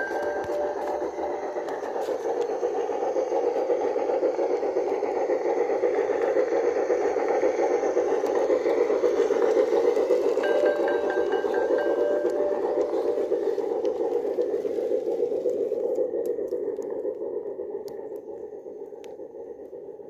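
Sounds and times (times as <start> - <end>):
model train whirring and rattling: 0.0 - 20.0.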